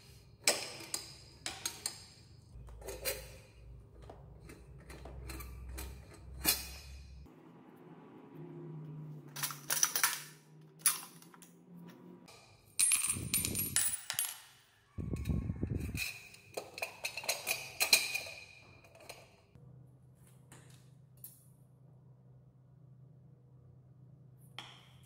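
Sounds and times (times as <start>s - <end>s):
metal parts clinking on tile floor: 9.3s - 11.5s, 12.3s - 19.4s.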